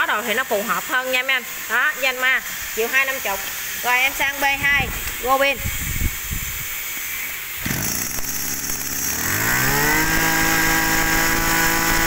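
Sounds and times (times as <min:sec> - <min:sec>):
brush cutter engine revving: 0:07.6 - 0:12.0.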